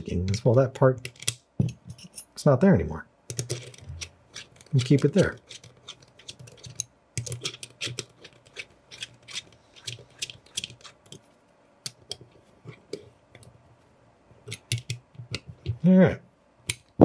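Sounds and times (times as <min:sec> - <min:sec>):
hex key clicking and scraping: 0:03.3 - 0:11.2, 0:14.5 - 0:15.4.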